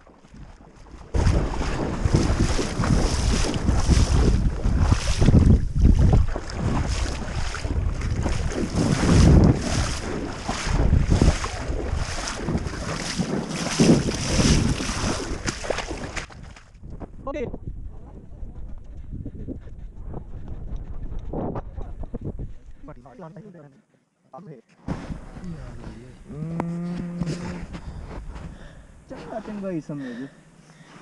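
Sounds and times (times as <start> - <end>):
wading through shallow water: 0.0 - 16.9, 24.9 - 31.0
wind noise on microphone: 0.2 - 23.0, 24.9 - 29.1.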